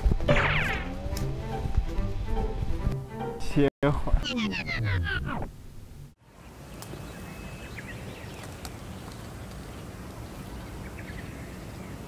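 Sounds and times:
small birds chirping: 6.3s - 12.0s.

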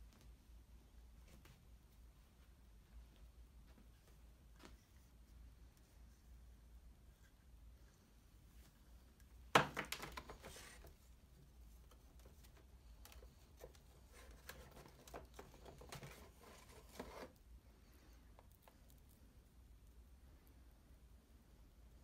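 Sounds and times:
packaging rustling and crinkling: 11.9s - 17.4s.

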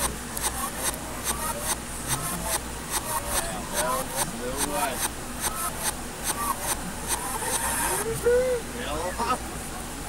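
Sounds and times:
reversed garbled voice: 5.5s - 8.8s.

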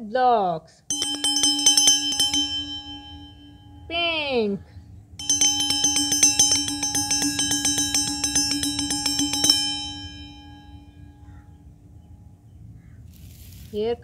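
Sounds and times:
bell-like chime strikes: 0.9s - 4.0s, 5.2s - 11.4s.

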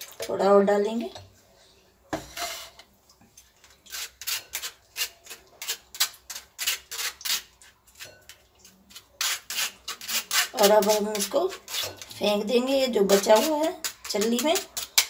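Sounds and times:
spoon scraping metal mesh strainer: 3.6s - 15.0s.

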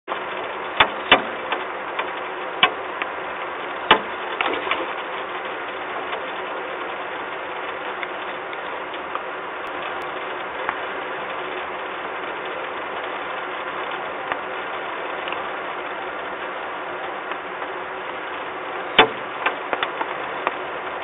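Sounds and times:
rain hiss: 0.1s - 21.0s.

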